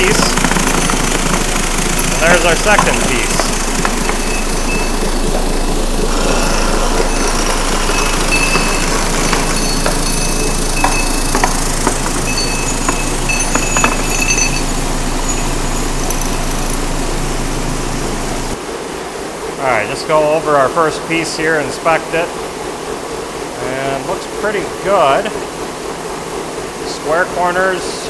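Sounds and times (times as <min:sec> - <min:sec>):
low motor hum: 0:00.0 - 0:18.6
tumbler media churning and rattling: 0:00.0 - 0:18.6.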